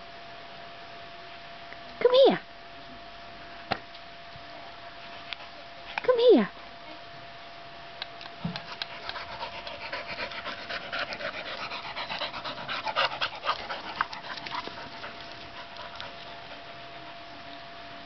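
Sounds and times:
dog panting fast: 8.4 - 17.4.

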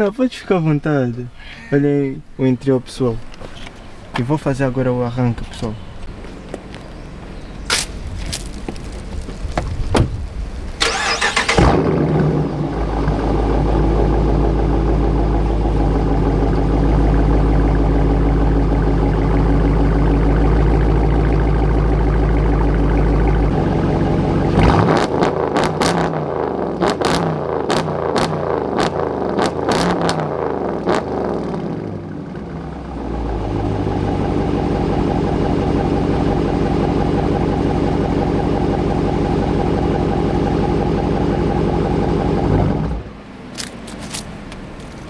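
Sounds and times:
exhaust cracks: 7.6 - 45.0
car engine revving and idling: 10.8 - 45.0.

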